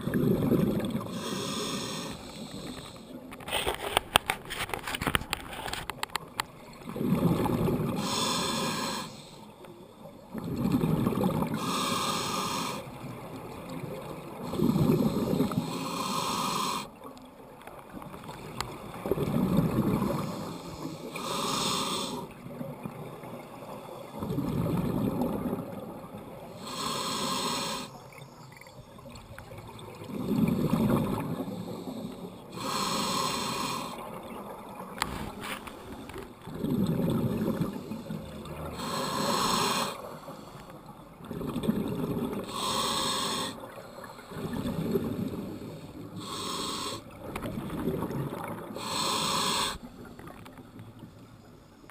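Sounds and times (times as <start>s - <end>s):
exhaled bubbles burbling: 0.0s - 1.2s, 6.8s - 8.0s, 10.3s - 11.6s, 18.2s - 20.4s, 24.2s - 26.4s, 28.6s - 31.5s, 36.0s - 39.4s, 41.2s - 42.5s, 44.3s - 45.7s, 47.1s - 48.8s
regulator hissing inhalation: 1.1s - 3.0s, 8.0s - 9.4s, 11.6s - 12.8s, 14.8s - 16.9s, 20.2s - 22.3s, 26.6s - 28.0s, 31.5s - 34.0s, 38.8s - 40.6s, 42.5s - 44.2s, 45.7s - 47.1s, 48.8s - 49.9s.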